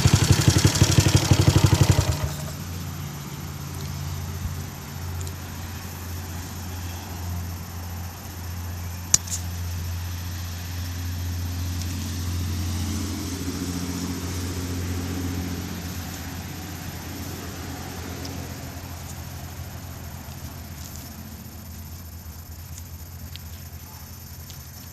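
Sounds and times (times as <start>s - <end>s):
motorcycle engine idling: 0.0s - 9.2s.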